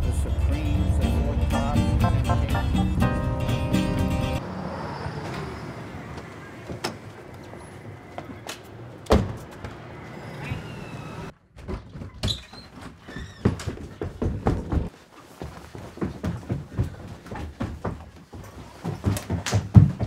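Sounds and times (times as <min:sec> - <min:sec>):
loud thump on door: 0:09.1 - 0:09.4
quick footsteps: 0:12.7 - 0:20.0.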